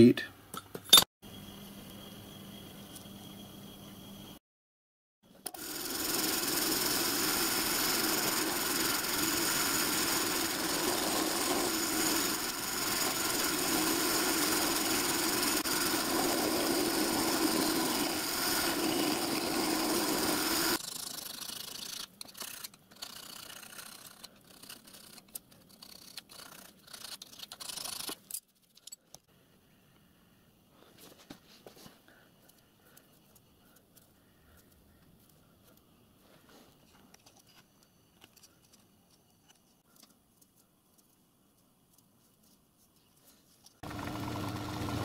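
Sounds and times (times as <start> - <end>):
milling machine whining: 5.5 - 20.8.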